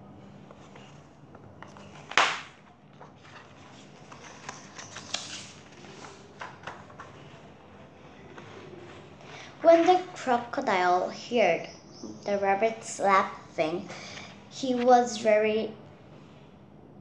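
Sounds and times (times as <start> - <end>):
paper pages turning: 0.4 - 10.1.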